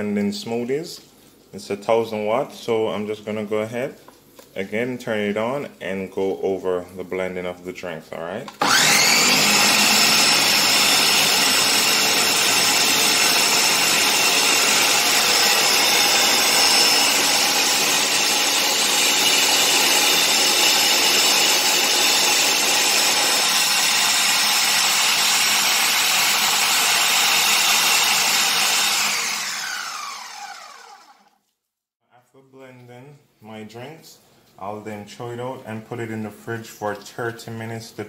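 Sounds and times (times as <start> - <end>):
blender motor whining: 8.6 - 31.4.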